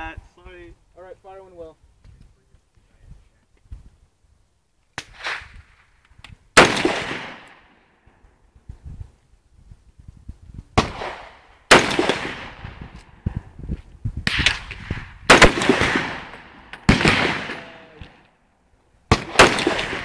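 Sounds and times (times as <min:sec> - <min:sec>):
rifle shots: 0:05.0 - 0:05.9, 0:06.6 - 0:07.8, 0:10.8 - 0:13.0, 0:14.2 - 0:18.2, 0:19.1 - 0:20.0.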